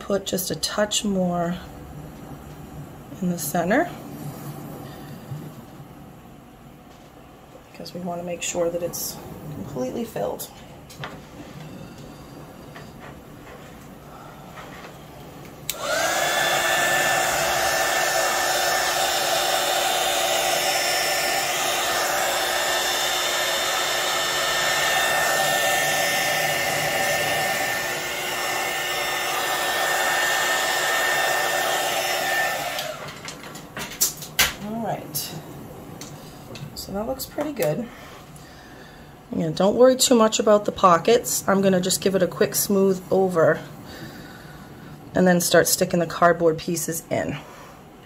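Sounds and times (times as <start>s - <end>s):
heat gun blowing with whine: 8.9s - 34.2s.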